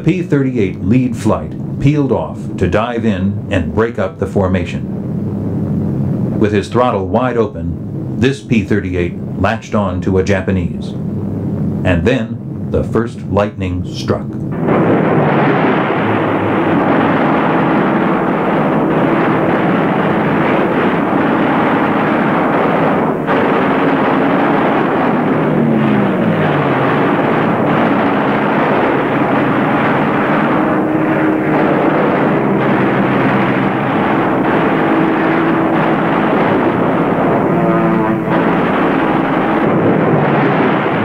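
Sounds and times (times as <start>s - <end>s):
propeller aircraft engines droning: 0.0s - 41.0s.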